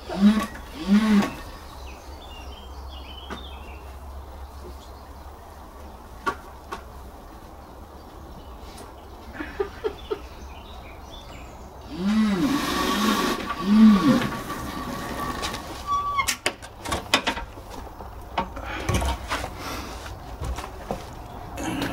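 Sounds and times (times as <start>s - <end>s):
electric motor whine: 0.0s - 1.5s, 11.9s - 15.4s.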